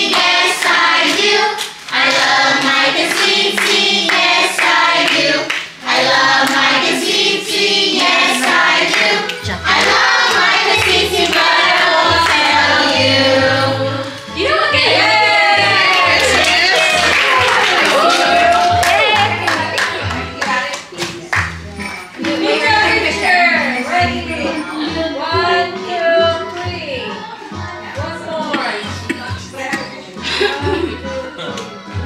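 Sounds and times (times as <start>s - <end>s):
voices singing over music: 0.0s - 32.0s
hand clapping: 0.1s - 5.8s, 16.0s - 22.5s.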